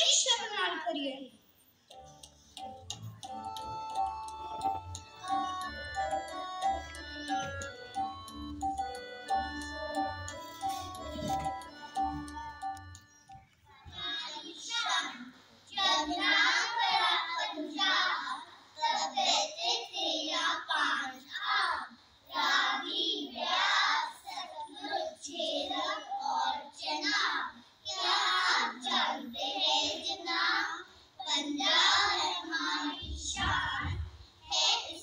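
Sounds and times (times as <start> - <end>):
children singing in chorus: 4.6 - 35.0.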